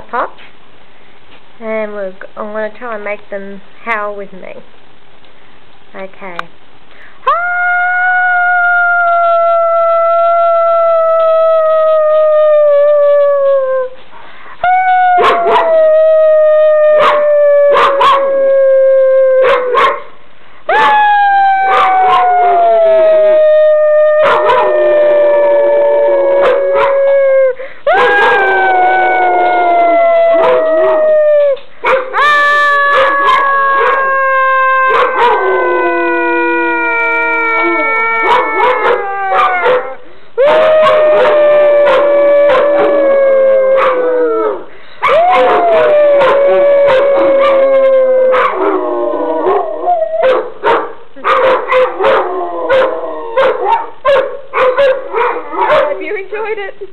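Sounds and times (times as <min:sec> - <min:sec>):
dogs howling in chorus: 0:14.7 - 0:20.0, 0:20.7 - 0:56.0.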